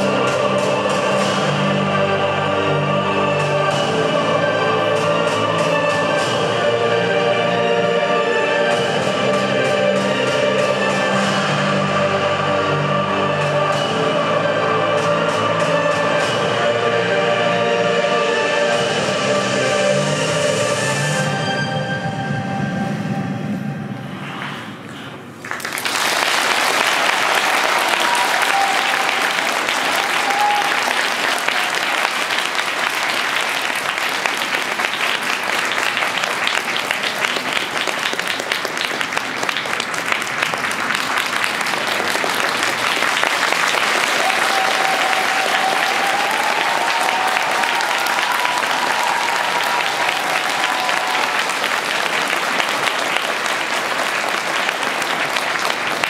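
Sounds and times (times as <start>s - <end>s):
skating music: 0.0s - 25.4s, 27.4s - 56.0s
audience applause: 25.4s - 56.0s.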